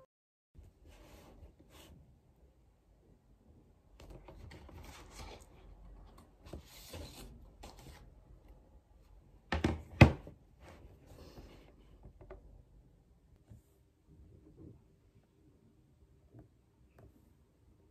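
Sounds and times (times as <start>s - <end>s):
knocks on a desk: 9.5s - 10.3s.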